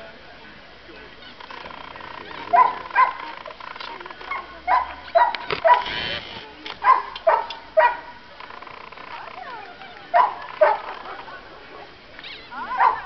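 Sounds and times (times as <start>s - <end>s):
small dog yapping: 2.5s - 3.4s, 4.3s - 6.0s, 9.4s - 10.9s, 12.2s - 13.0s.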